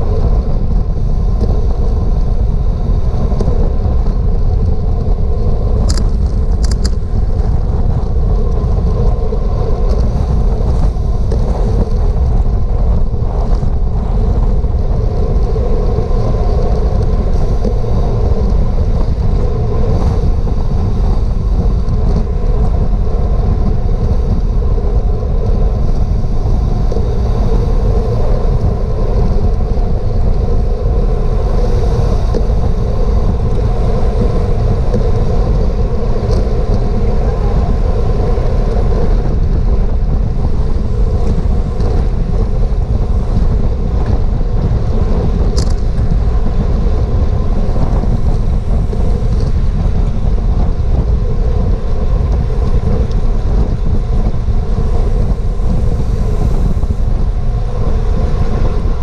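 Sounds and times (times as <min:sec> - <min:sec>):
loud wind rush on microphone: 0:00.0 - 0:59.0.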